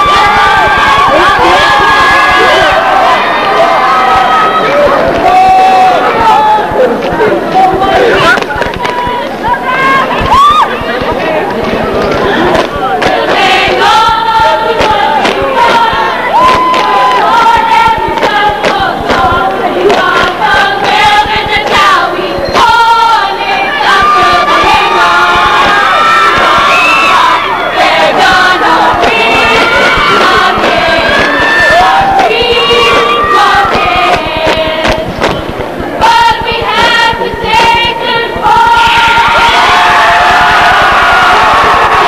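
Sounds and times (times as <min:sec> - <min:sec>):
crowd cheering and yelling: 0:00.0 - 0:42.0
women singing in chorus: 0:13.0 - 0:40.4.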